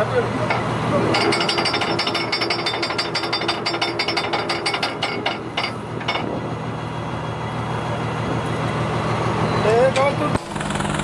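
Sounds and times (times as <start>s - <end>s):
boat engine drone: 5.1s - 11.0s.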